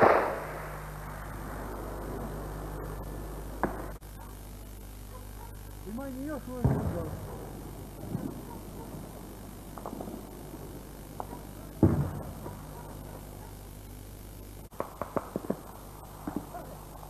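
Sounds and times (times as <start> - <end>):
muffled gunshots: 0.0 - 4.0, 6.5 - 13.4, 14.7 - 17.0
low steady hum: 0.0 - 17.0.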